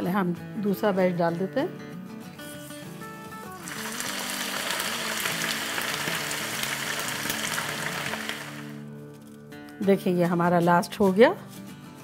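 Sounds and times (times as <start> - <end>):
soft background music: 0.0 - 12.0
onions sizzling in hot oil: 3.6 - 8.8.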